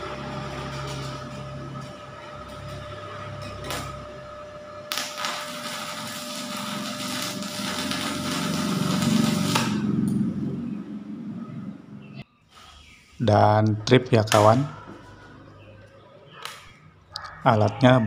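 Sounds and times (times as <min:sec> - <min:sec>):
welding arc crackling and sizzling: 0:00.0 - 0:10.8.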